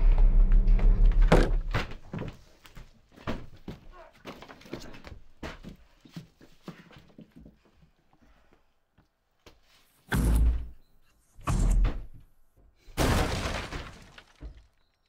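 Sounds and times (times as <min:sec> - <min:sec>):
heavy crashing blows: 0:00.0 - 0:01.8
breaking and shattering: 0:13.0 - 0:15.0.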